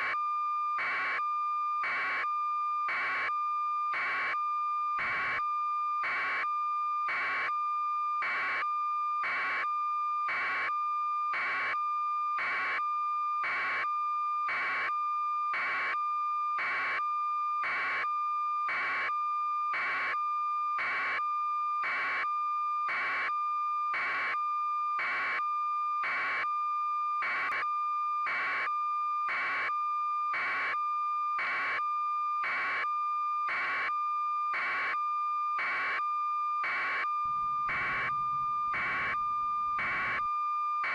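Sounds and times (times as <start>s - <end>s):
steady high electronic tone: 37.3s - 40.2s
pulsing electronic beep: 37.3s - 40.3s.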